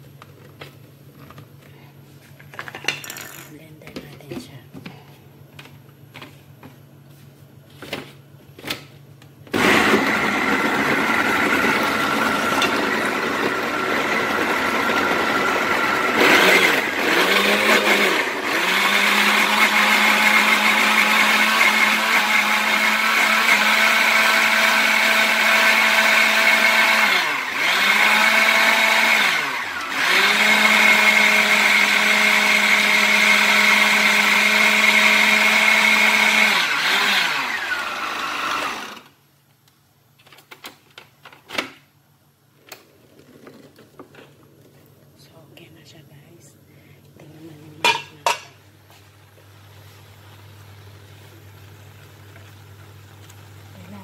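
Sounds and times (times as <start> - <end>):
blender motor running: 9.5 - 39.2.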